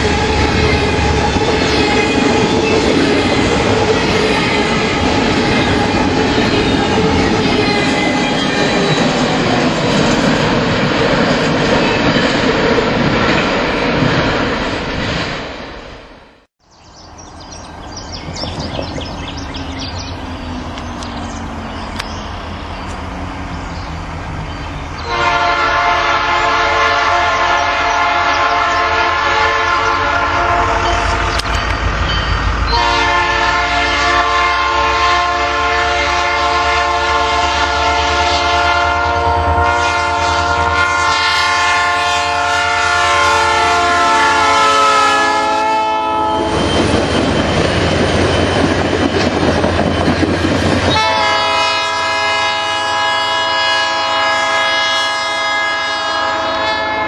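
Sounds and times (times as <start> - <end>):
rumble of locomotive and train: 0.0 - 57.0
locomotive air horn blasts: 25.0 - 31.4, 32.7 - 46.6, 50.9 - 57.0.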